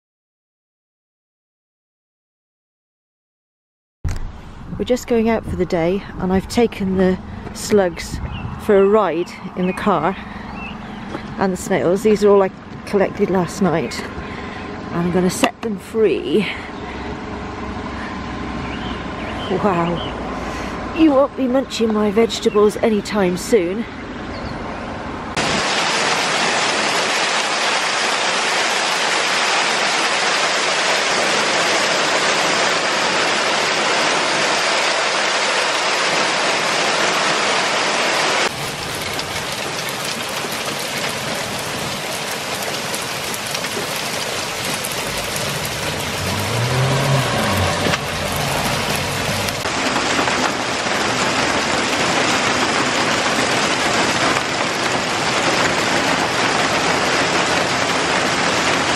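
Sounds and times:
hail and rain pelting down: 0:25.4 - 0:58.9.

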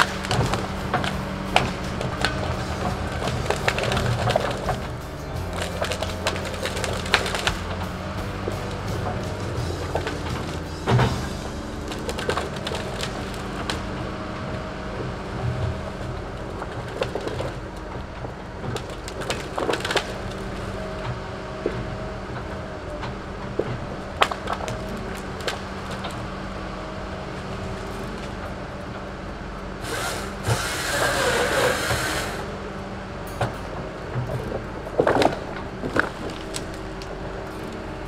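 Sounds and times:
logs knocking together: 0:00.0 - 0:32.6, 0:33.3 - 0:38.0
diesel engine running: 0:00.0 - 0:38.0.

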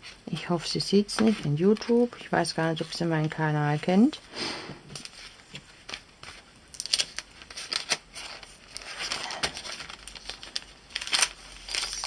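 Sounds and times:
cellophane bag crinkling: 0:06.7 - 0:12.0.

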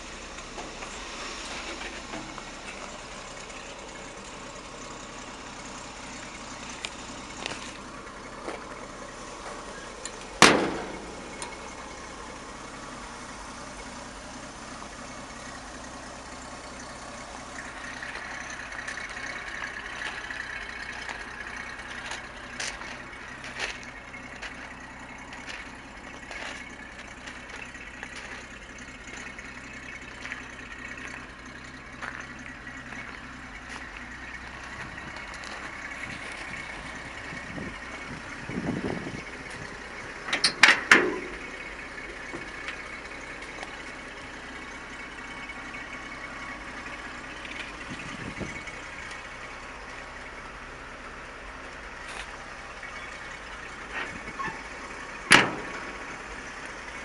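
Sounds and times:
truck engine idling: 0:00.0 - 0:57.0
cab door slamming: 0:10.4 - 0:11.1, 0:55.3 - 0:56.0.

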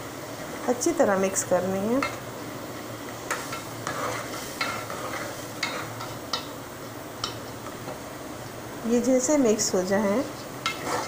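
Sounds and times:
pan sizzling: 0:00.0 - 0:11.0
ladle clinking and scraping pot: 0:03.3 - 0:06.5, 0:10.6 - 0:11.0.

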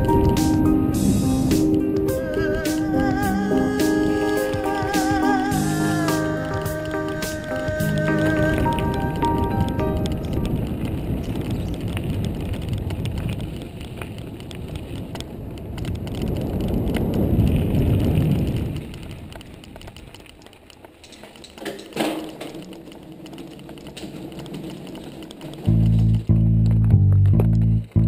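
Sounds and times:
wind on microphone: 0:00.0 - 0:20.4
bicycle rumbling over gravel: 0:00.0 - 0:28.0
tyres clicking on loose stones: 0:01.6 - 0:27.8.

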